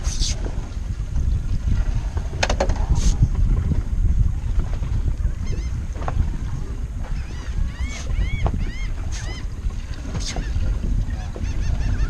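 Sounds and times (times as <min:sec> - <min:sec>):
wind buffeting microphone: 0:00.0 - 0:12.0
bird calling: 0:07.1 - 0:09.5, 0:10.1 - 0:12.0.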